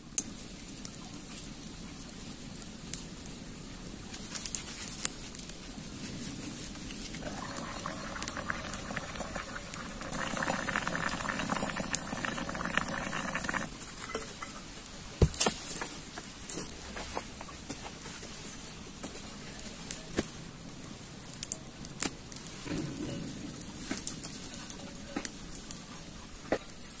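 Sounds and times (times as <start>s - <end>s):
pot of liquid boiling: 0.0s - 15.8s
wood fire crackling: 0.0s - 27.0s.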